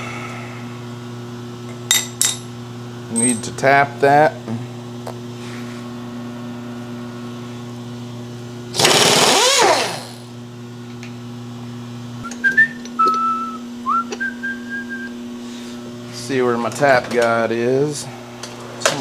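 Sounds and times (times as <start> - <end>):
shop machine hum: 0.0 - 19.0
man whistling: 12.2 - 15.2.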